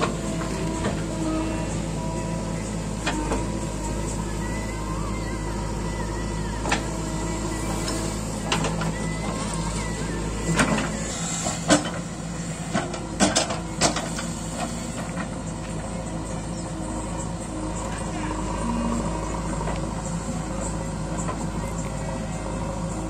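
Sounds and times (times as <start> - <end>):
diesel engines running: 0.0 - 23.0
backhoe bucket knocks and clanks: 12.7 - 14.3.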